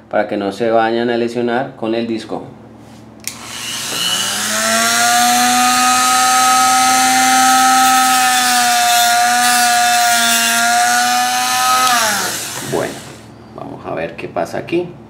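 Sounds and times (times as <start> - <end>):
rotary tool high-pitched whine: 3.3 - 13.4.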